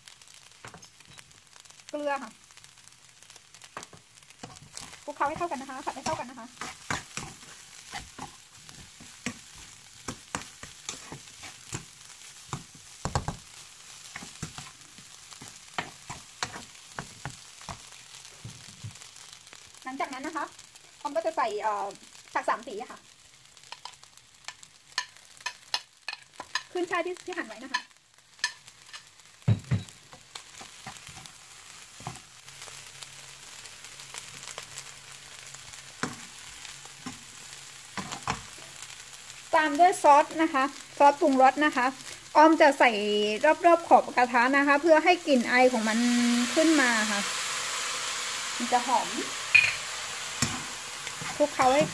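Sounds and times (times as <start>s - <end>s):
food sizzling: 0.0s - 51.9s
metal spatula scraping pan: 4.4s - 11.9s.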